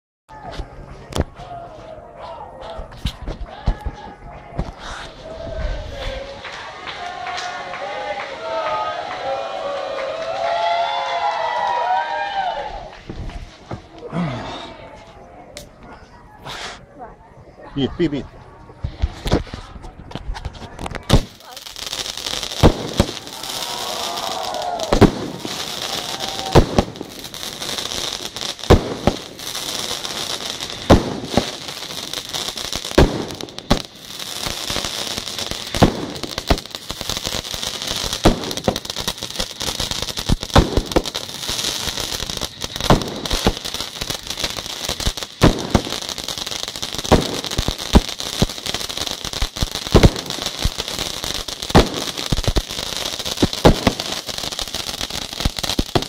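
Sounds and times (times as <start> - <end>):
firework bangs: 20.4 - 56.0
firework fountains hissing: 20.8 - 56.0.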